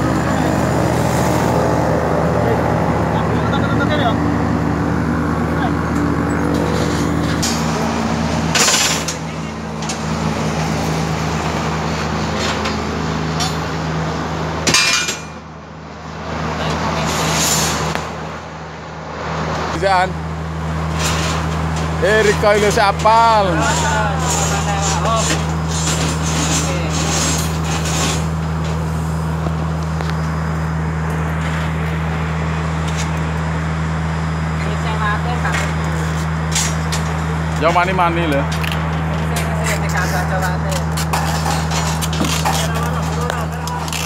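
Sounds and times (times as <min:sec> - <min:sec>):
construction site din: 0:00.0 - 0:44.0
highway traffic: 0:00.0 - 0:44.0
low engine hum: 0:00.0 - 0:44.0
sharp metallic clank: 0:08.5 - 0:10.0, 0:14.6 - 0:15.4.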